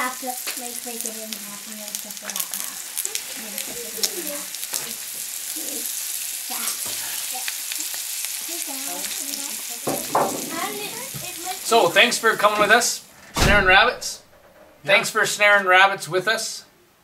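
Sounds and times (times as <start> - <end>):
meat sizzling in a skillet: 0.0 - 13.1.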